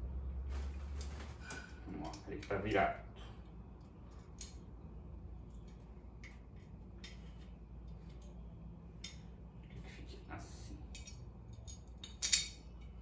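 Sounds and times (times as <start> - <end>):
low steady hum: 0.0 - 13.0
small metal parts clicking: 10.9 - 13.0.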